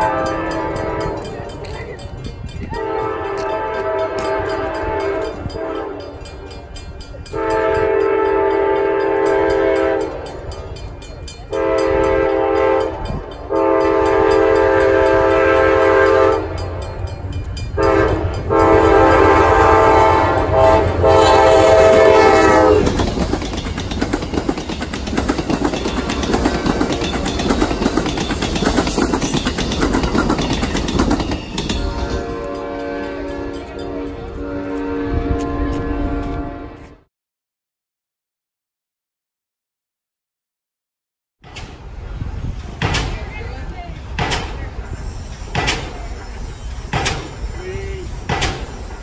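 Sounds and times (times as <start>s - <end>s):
locomotive air horn blasts: 0.0s - 1.3s, 2.7s - 6.2s, 7.3s - 10.3s, 11.5s - 16.8s, 17.8s - 23.1s, 31.8s - 37.1s
train wheels clattering over rail joints: 21.7s - 33.8s, 41.4s - 49.0s.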